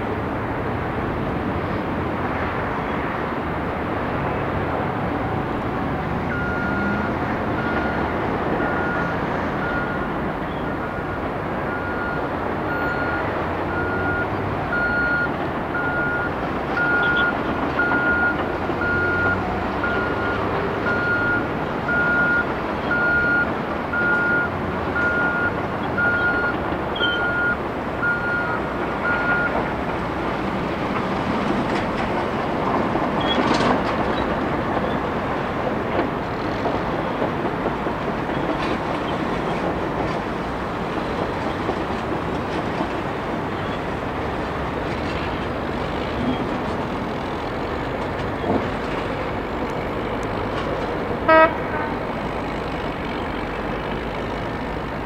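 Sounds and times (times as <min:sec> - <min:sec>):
heavy diesel engines running: 0:00.0 - 0:55.0
backup alarm beeping: 0:11.7 - 0:29.6.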